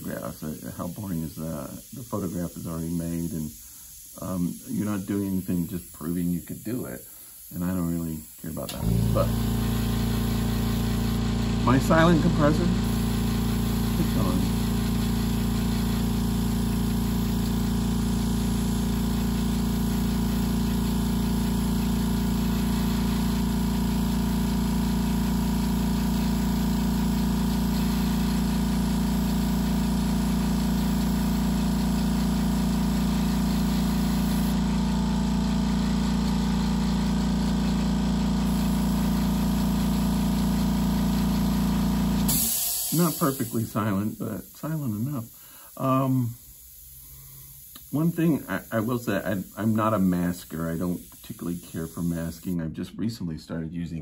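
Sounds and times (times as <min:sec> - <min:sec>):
airbrush compressor humming: 0:00.0 - 0:52.6.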